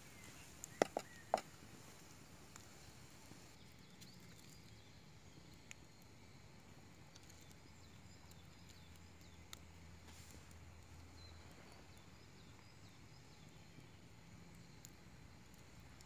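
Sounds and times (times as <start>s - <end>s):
faint bird chirps: 0.0s - 1.5s, 11.0s - 15.0s
fire pops: 0.0s - 3.6s
campfire crackling: 0.0s - 16.0s.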